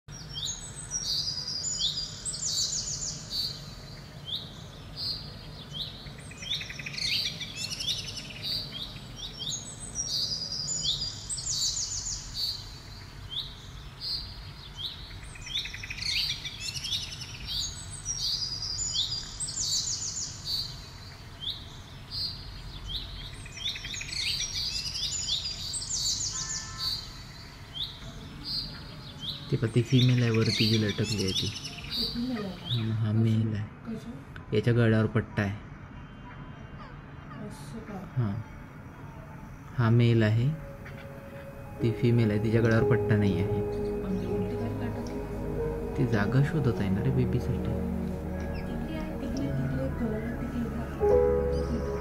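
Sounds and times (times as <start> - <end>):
low background rumble: 41.1 - 52.0.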